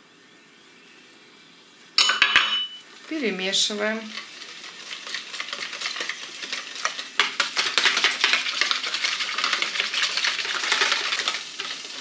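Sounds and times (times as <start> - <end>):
whisk beating eggs in bowl: 3.8 - 12.0.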